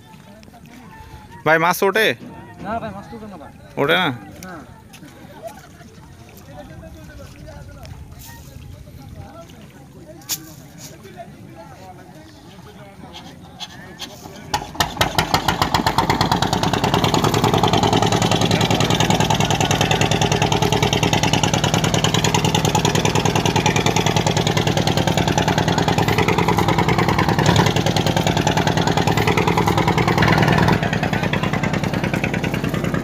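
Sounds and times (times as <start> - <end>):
boat engine puttering: 12.5 - 33.0.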